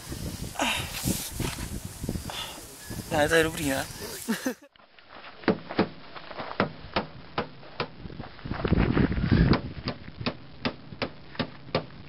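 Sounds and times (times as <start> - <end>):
rough scuffing noise: 0.2 - 2.1, 3.5 - 6.6.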